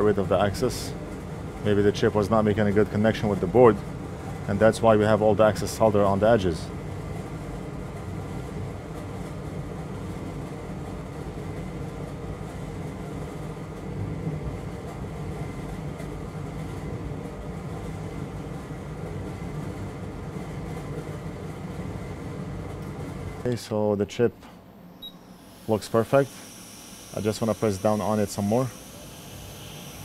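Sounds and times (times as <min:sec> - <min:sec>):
hot-air station blowing: 0:16.8 - 0:30.0
faint high whine: 0:23.4 - 0:30.0.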